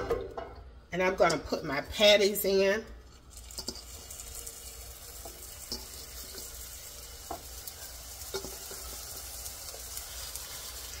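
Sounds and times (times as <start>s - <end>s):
meat patties sizzling in oil: 3.2s - 11.0s.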